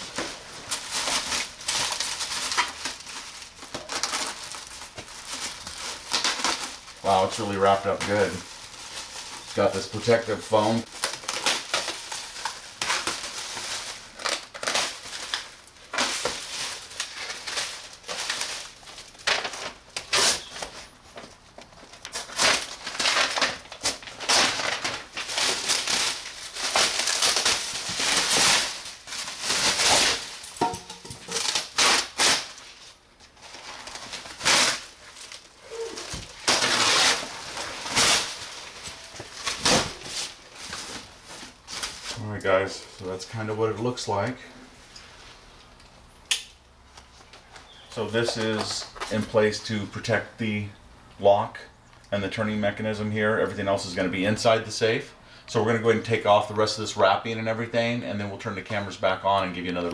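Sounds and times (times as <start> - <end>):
knife cutting plastic wrap: 0.0 - 20.9, 21.9 - 30.6, 31.2 - 42.2
plastic wrap crinkling and rustling: 0.0 - 46.0, 46.8 - 50.3.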